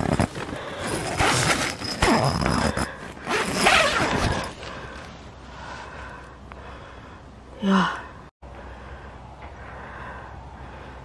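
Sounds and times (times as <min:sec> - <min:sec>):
zipper pulled open: 0:00.0 - 0:04.7.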